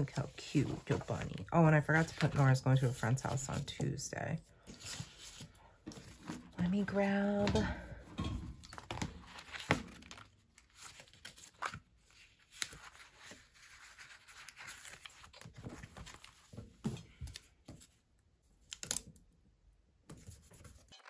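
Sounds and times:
paper pages rustling: 0.1 - 3.9, 4.6 - 7.6, 8.7 - 18.0.

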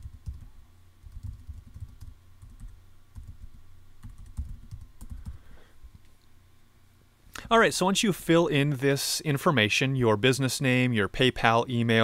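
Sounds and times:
typing on keyboard: 0.0 - 5.4.

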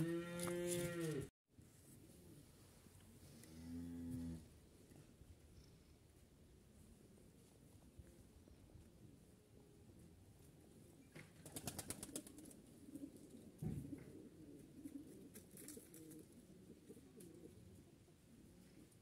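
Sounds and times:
pigeons cooing faintly: 4.4 - 19.0.

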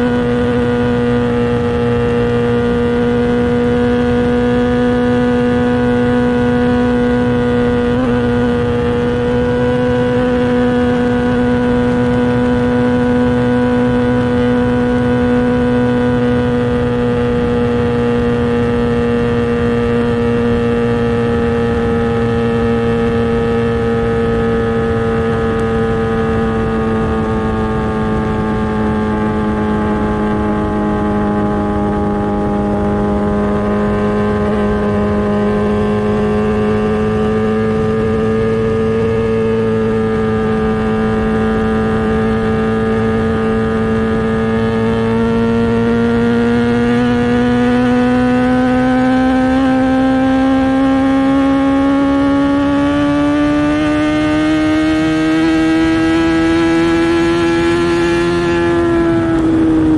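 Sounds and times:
motorcycle engine at high revs: 0.0 - 59.9.

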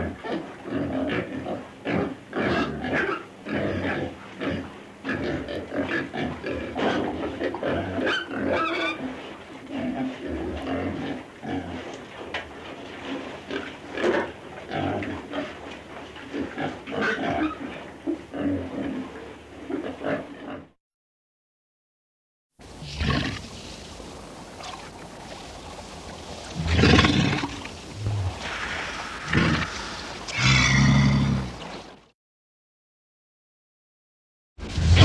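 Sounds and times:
walrus grunting: 26.6 - 31.6.

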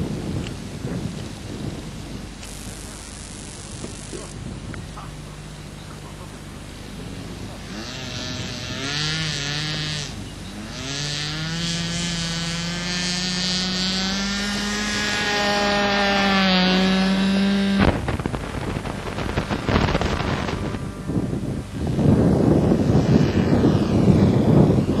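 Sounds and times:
model airplane engine revving: 0.0 - 25.0
wind noise on microphone: 0.0 - 25.0.

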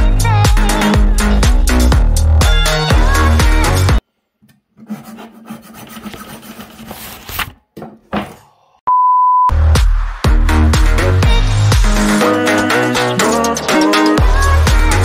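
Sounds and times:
background music: 0.0 - 4.0, 9.6 - 15.0.

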